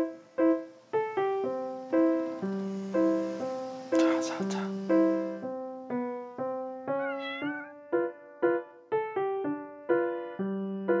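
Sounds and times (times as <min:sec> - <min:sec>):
piano music: 0:00.0 - 0:11.0
kitten meowing: 0:06.9 - 0:07.8.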